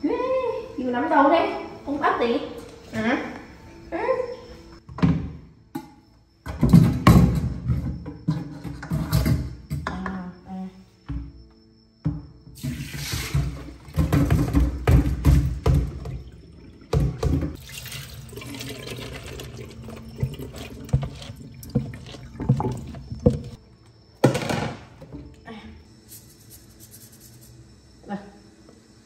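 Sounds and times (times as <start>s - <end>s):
water splashing and draining: 12.6s - 14.6s, 15.4s - 23.6s.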